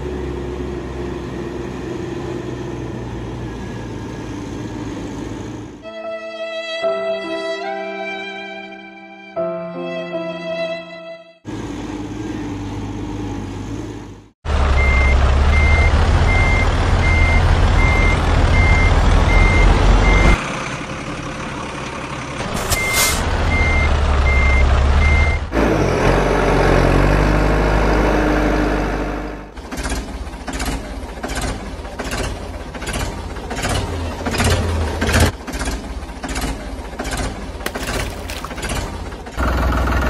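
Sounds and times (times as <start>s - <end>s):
diesel engine running: 11.5s - 40.0s
reversing alarm beeping: 14.8s - 20.4s, 22.6s - 25.5s.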